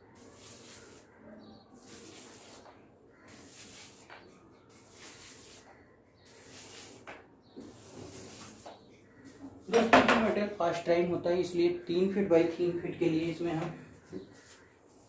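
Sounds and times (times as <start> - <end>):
paint roller rasping on wall: 0.0 - 9.9.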